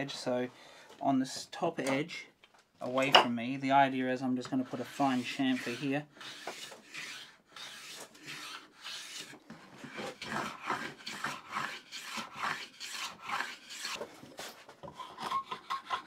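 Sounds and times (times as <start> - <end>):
hand plane cutting wood: 4.5 - 16.0.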